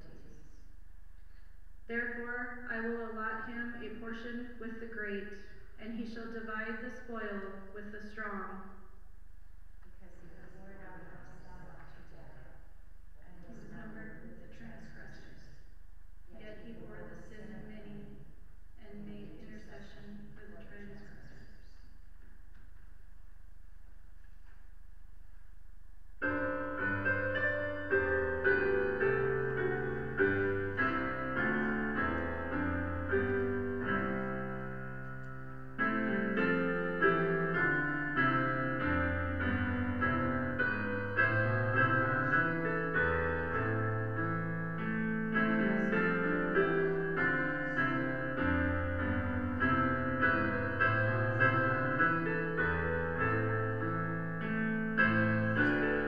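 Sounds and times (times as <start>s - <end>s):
solo piano chords: 26.2s - 56.0s.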